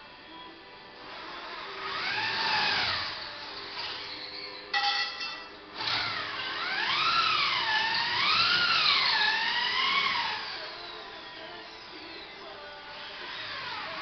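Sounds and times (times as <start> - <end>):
electric drill whining: 1.1 - 4.7, 5.8 - 12.0, 12.8 - 14.0.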